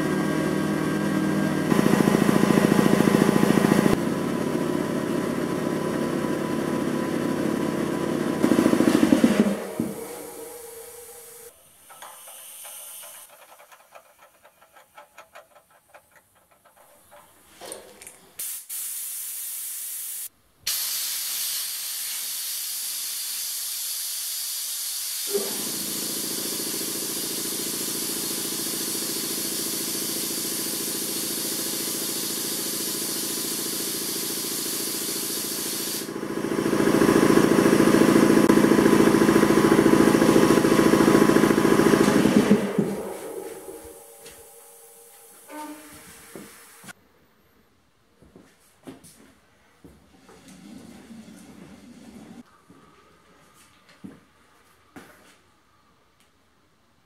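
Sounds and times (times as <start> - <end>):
air compressor running: 0.0 - 17.7, 20.7 - 47.0
compressed air hissing: 9.7 - 13.3, 18.4 - 36.1, 41.9 - 47.0
low hum: 37.5 - 46.2.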